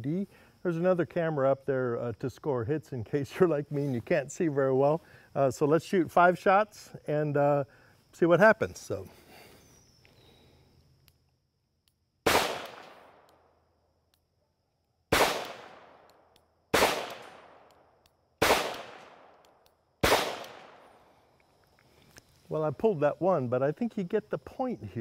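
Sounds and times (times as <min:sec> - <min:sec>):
revolver shots with echo: 0:12.3 - 0:13.0, 0:16.8 - 0:17.5, 0:18.4 - 0:19.2, 0:20.0 - 0:20.8.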